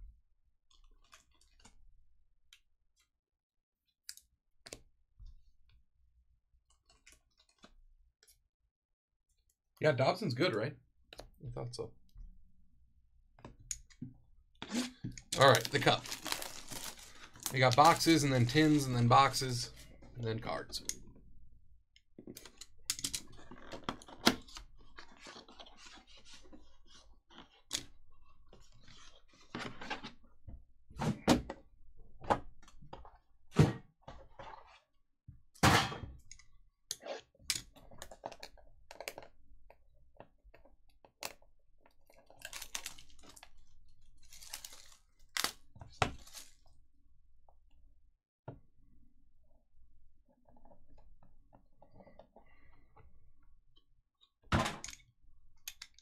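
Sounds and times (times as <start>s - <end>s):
packaging being opened and handled: 15.4s - 19.5s, 42.1s - 46.7s.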